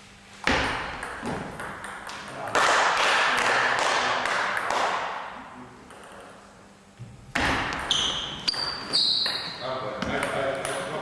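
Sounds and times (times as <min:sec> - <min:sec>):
ping pong ball clicking: 0:05.8 - 0:06.4, 0:10.1 - 0:10.9
shoes squeaking on wooden floor: 0:07.9 - 0:09.6.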